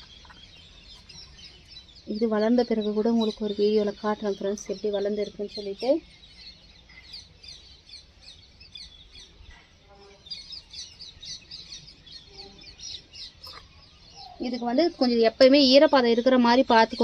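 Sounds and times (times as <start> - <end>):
faint lower bird calls: 0.0 - 17.0
small birds chirping: 0.0 - 17.0.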